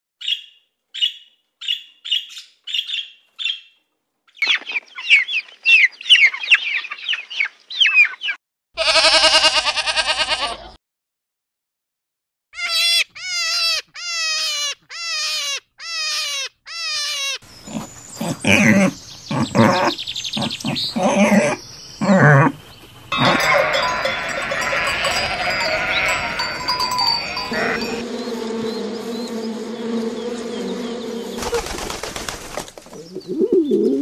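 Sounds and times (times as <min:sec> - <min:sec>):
flock of sheep bleating: 0:08.8 - 0:10.7, 0:23.1 - 0:28.0
goat bleating: 0:08.8 - 0:10.7, 0:23.1 - 0:28.0
boar and piglets grunting and squealing: 0:12.6 - 0:28.0.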